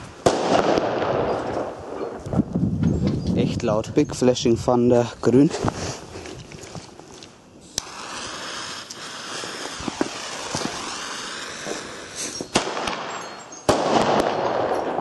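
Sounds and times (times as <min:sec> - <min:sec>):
firework crack: 0:00.0 - 0:02.5, 0:05.5 - 0:15.0
fuse hissing: 0:07.7 - 0:12.5.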